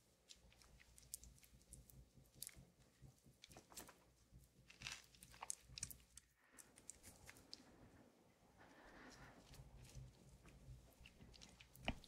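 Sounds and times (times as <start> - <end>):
person chewing food: 10.9 - 12.0.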